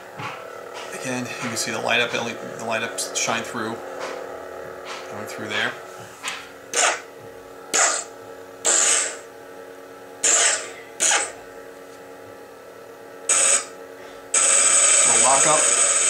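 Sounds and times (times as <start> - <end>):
lightsaber hum: 0.0 - 11.8, 13.3 - 16.0
sharp lightsaber effects: 7.8 - 8.1, 8.7 - 9.2, 10.2 - 11.4.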